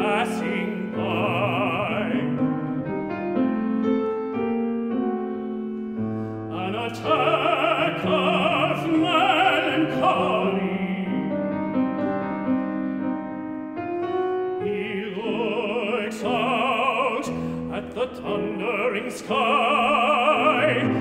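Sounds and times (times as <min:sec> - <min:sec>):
operatic tenor singing: 0:00.0 - 0:02.6, 0:06.5 - 0:11.8, 0:14.6 - 0:21.0
grand piano playing: 0:00.0 - 0:21.0.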